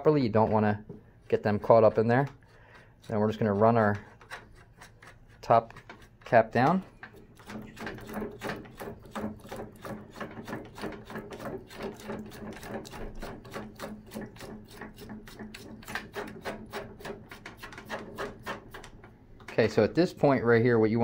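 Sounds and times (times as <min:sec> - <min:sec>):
metal threads rasping: 0:01.2 - 0:19.0.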